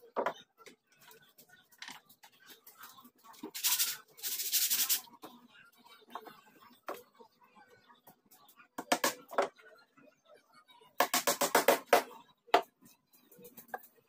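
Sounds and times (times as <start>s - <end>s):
sanding wood edge: 3.6s - 5.0s.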